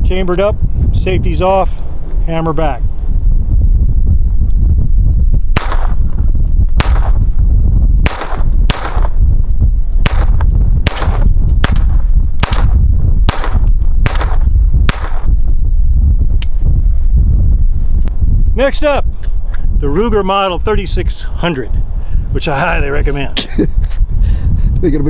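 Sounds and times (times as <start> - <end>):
wind rumble on microphone: 0.0 - 25.0
pistol shots echoing: 5.6 - 6.0, 6.8 - 7.2, 8.0 - 9.2, 10.0 - 15.3.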